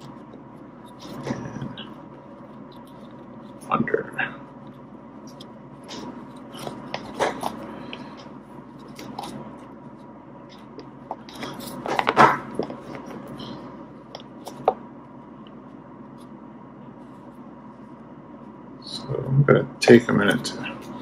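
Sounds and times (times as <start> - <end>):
rope rubbing and clicking: 8.7 - 13.4.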